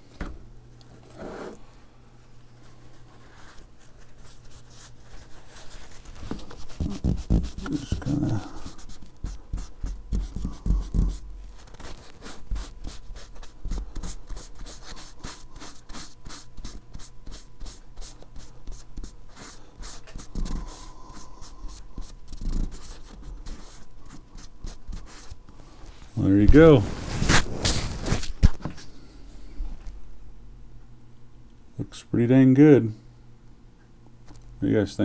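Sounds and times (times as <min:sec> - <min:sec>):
cloth rag rubbing on metal: 0:02.7 - 0:17.8.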